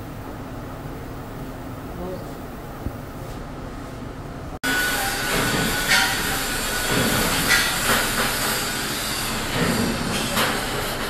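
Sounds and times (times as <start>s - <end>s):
workshop hum: 0.0s - 11.0s
industrial machine noise: 4.4s - 11.0s
machine hissing: 4.6s - 11.0s.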